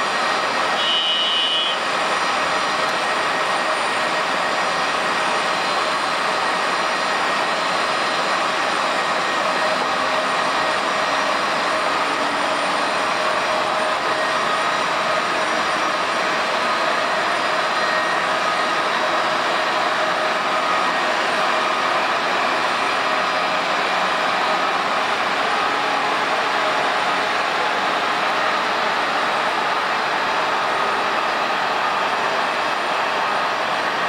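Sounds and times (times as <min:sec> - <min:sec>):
jet engine whine: 0:00.0 - 0:34.0
short high beep: 0:00.8 - 0:01.8.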